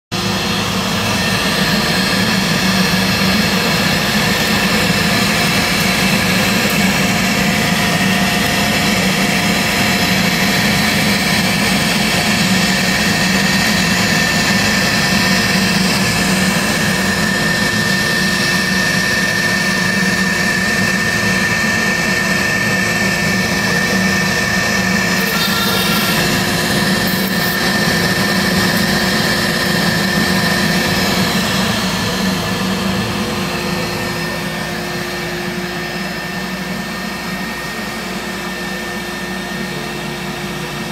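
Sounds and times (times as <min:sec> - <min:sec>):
router spindle whine: 0:00.2 - 0:40.9
bit cutting wood: 0:25.0 - 0:31.0.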